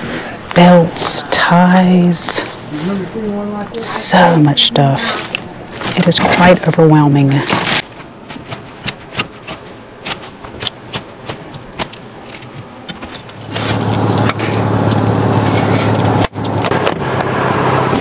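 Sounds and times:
low hum: 0:00.0 - 0:18.0
hangers clicking and scraping: 0:07.4 - 0:16.1.

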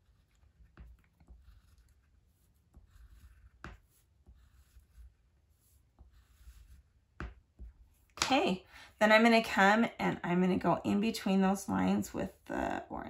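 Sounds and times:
crayon scratching on paper: 0:00.0 - 0:08.1.

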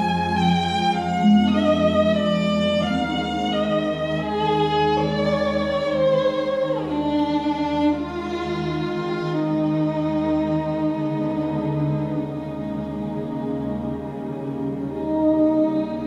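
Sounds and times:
low orchestral accompaniment: 0:00.0 - 0:16.0
solo violin melody: 0:00.0 - 0:16.0.

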